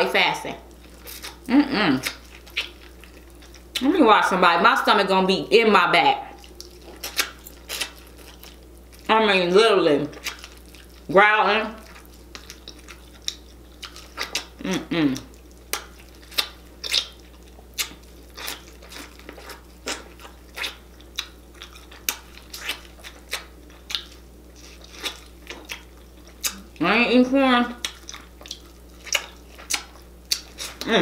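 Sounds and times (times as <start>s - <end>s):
person chewing and lip smacking: 0.7s - 3.9s, 6.3s - 9.1s, 10.1s - 11.1s, 11.8s - 26.8s, 27.7s - 31.0s
person humming mm: 1.5s - 2.1s, 14.6s - 15.3s, 30.8s - 31.0s.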